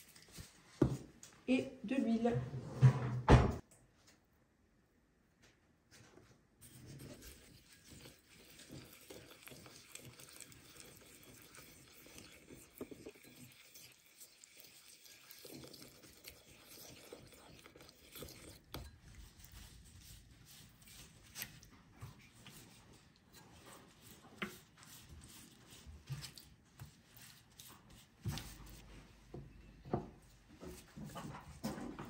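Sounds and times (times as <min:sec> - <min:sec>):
chicken squelching in marinade: 0:06.7 - 0:28.9.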